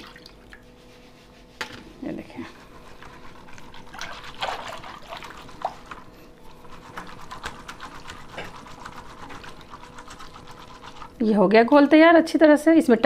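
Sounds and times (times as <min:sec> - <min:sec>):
water splashing and sloshing: 0:00.0 - 0:00.9, 0:02.6 - 0:11.2.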